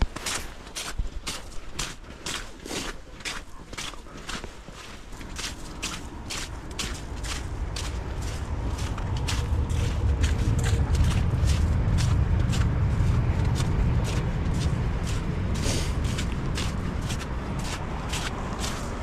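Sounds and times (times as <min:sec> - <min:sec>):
footsteps walking: 0:00.0 - 0:19.0
low rumble: 0:05.0 - 0:19.0.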